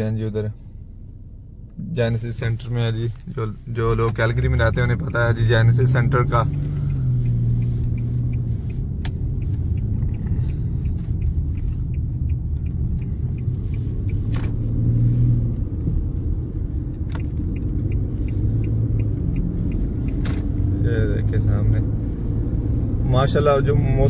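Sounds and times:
car engine and road noise: 0:00.0 - 0:24.0.

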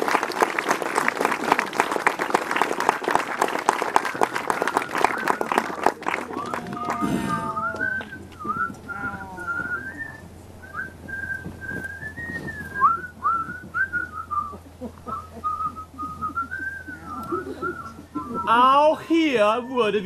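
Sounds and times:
person whistling a tune: 0:06.4 - 0:18.8.

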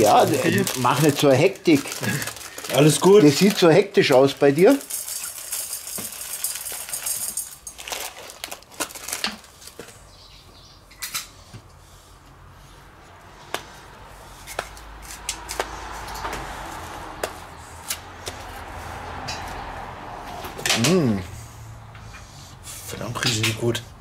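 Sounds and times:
brittle pouring into metal bowl: 0:00.0 - 0:08.3.

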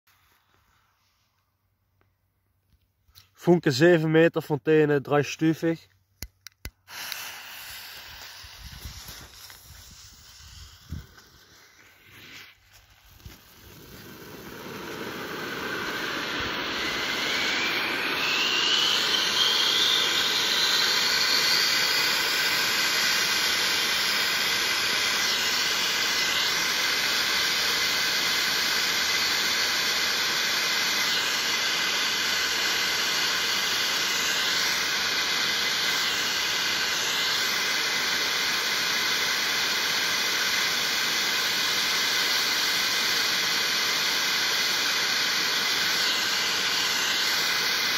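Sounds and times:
thin rising whine: 0:06.5 - 0:47.9
firework fountain hissing sparks: 0:06.6 - 0:47.9.

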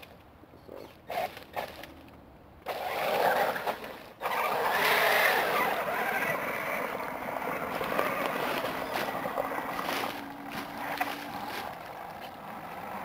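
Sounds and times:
electric toy truck motors: 0:01.0 - 0:13.0
tires splashing water: 0:02.7 - 0:13.0.

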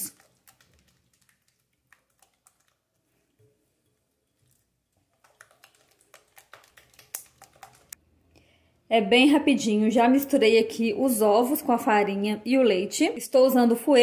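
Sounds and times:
whisk clicking against glass bowl: 0:05.1 - 0:08.0.

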